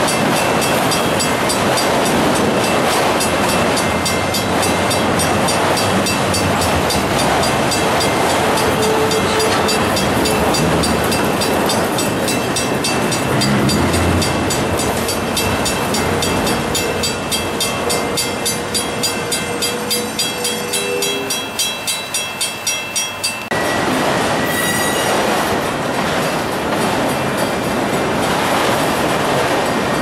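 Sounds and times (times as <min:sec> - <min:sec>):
freight cars rumbling and clattering: 0:00.0 - 0:20.5
railroad crossing bell ringing: 0:00.0 - 0:25.4
high wheel squeal: 0:08.4 - 0:10.7, 0:24.4 - 0:25.2.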